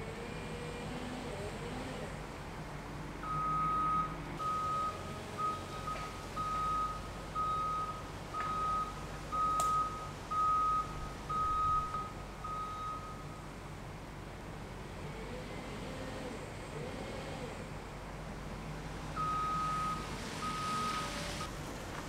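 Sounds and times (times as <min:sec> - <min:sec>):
engine running low: 0:00.0 - 0:22.0
reversing alarm beeping: 0:03.2 - 0:13.4, 0:19.2 - 0:21.5.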